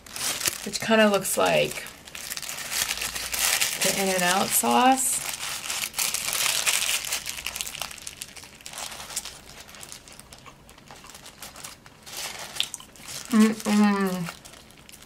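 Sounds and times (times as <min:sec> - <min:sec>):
paper wrapper crinkling: 0:00.0 - 0:15.0
chewing: 0:12.6 - 0:13.1.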